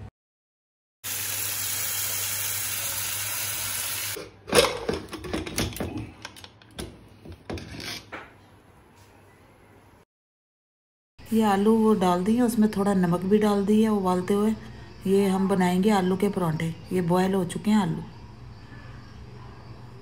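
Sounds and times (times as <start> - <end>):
tap water running into pot: 1.1 - 4.2.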